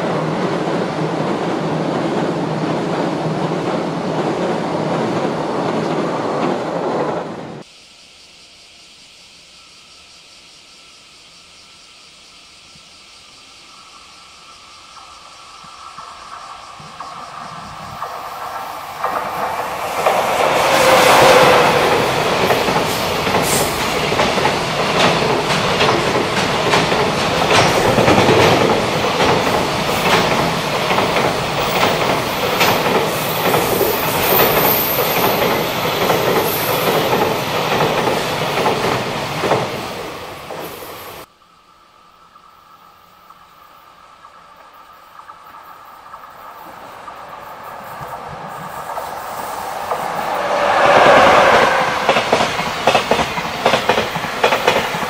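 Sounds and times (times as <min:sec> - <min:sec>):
freight train passing: 0:00.0 - 0:07.7, 0:13.2 - 0:41.3, 0:43.3 - 0:55.0
clickety-clack of train wheels: 0:14.9 - 0:41.3, 0:44.2 - 0:55.0.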